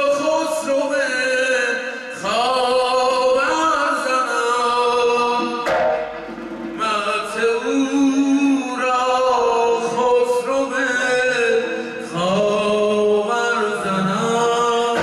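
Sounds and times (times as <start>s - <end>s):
man singing ornamented notes: 0.0s - 5.7s, 6.8s - 15.0s
large drum stroke: 4.6s - 8.4s.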